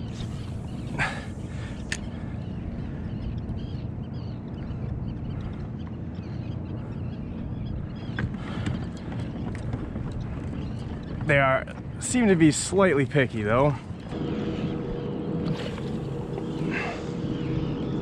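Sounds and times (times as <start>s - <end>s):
water noise: 0.0s - 3.0s, 13.6s - 18.0s.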